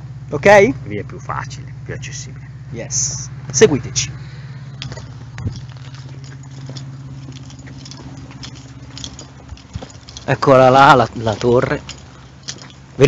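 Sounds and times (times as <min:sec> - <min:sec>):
low hum: 0:00.0 - 0:13.0
footsteps on gravel: 0:03.3 - 0:13.0.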